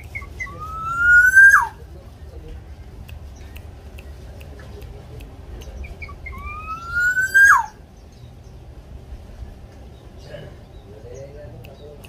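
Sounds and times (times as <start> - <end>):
bird long rising whistle: 0.4 - 1.8, 6.3 - 7.8
faint ticks: 2.5 - 6.4.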